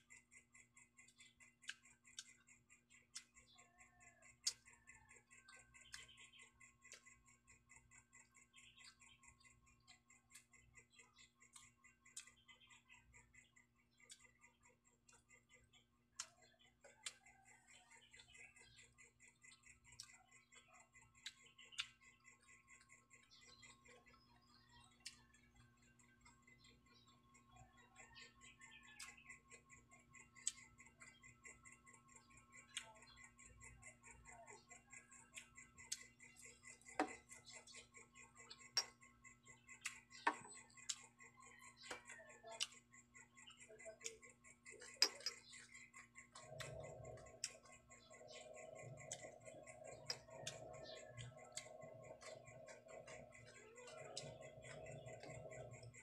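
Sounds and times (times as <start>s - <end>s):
lip-smacking clicks: 0.1s - 56.0s
person chewing food: 13.4s - 26.4s, 35.1s - 42.8s, 43.5s - 56.0s.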